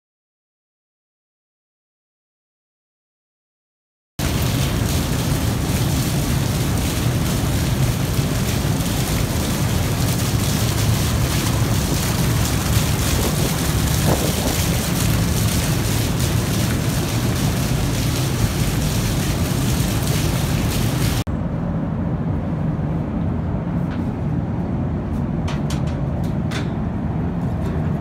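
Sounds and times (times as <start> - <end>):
water splashing on concrete: 4.2 - 21.3
low even rumble: 4.2 - 28.0.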